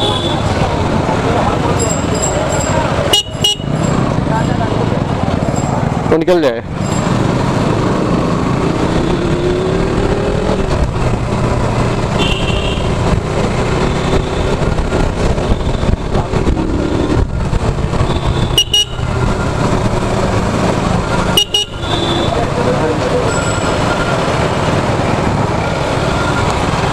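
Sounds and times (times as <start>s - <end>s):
motorcycle engine running: 0.0s - 26.9s
horn beeps: 3.1s - 3.8s, 18.0s - 19.2s, 21.3s - 22.4s.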